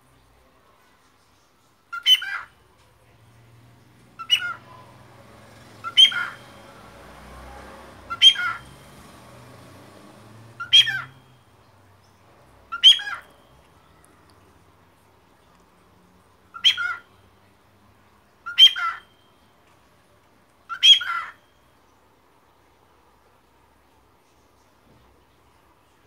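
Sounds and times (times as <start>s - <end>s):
cockatiel chirping: 5.8s - 6.6s, 8.1s - 8.7s, 10.6s - 11.2s, 12.7s - 13.3s, 16.6s - 17.0s, 18.5s - 19.0s, 20.7s - 21.3s.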